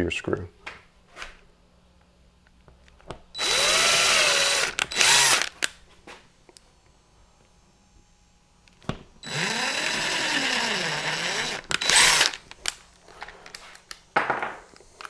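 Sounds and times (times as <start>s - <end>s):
cordless drill boring: 3.4s - 5.6s, 9.2s - 12.5s.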